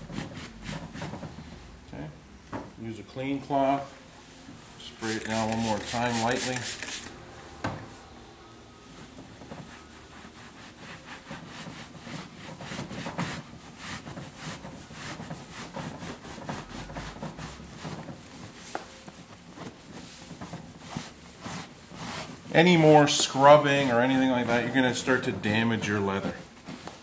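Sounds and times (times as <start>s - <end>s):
cloth rubbing on leather: 5.0s - 7.1s, 9.4s - 25.3s.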